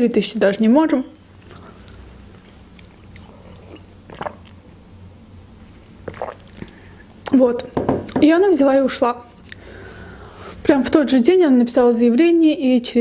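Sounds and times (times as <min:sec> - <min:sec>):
person chewing: 0:01.4 - 0:04.8, 0:06.0 - 0:07.1, 0:09.4 - 0:10.5
gulp: 0:03.0 - 0:04.6, 0:06.0 - 0:07.0
person sipping from a mug: 0:03.1 - 0:04.6, 0:06.0 - 0:07.1.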